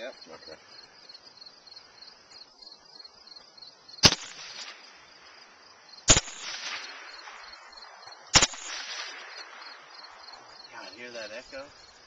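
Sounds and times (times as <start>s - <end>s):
gunshot echo: 4.0s - 5.1s, 6.1s - 10.3s
rifle shots: 4.0s - 5.1s, 6.1s - 10.4s.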